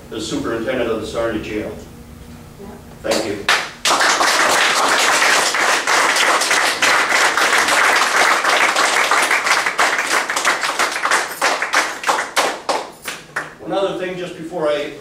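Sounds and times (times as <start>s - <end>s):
audience applauding: 3.5s - 13.5s.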